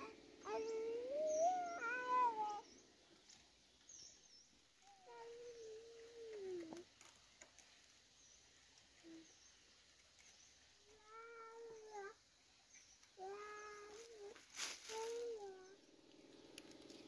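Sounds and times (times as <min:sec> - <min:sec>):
faint clicks: 0:16.0 - 0:17.0.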